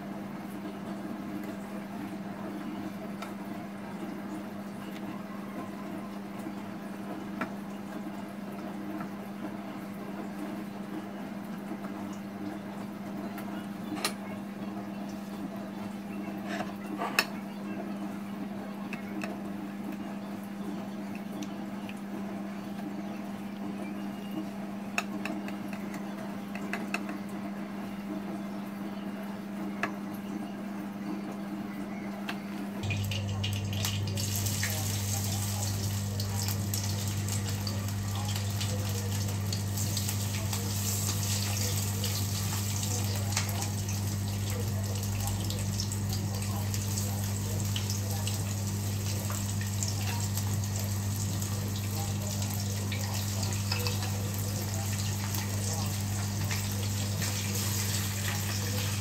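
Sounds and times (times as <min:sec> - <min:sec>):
fish sizzling in hot oil: 0:32.9 - 0:59.0.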